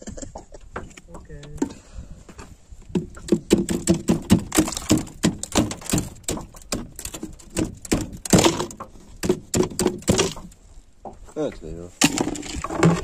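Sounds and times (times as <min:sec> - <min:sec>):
rapid knocks and thuds: 0:02.9 - 0:10.6.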